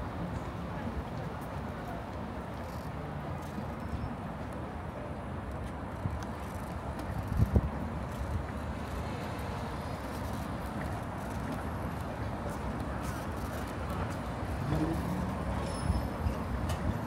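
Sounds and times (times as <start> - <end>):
hum of passing vehicles: 4.9 - 17.0.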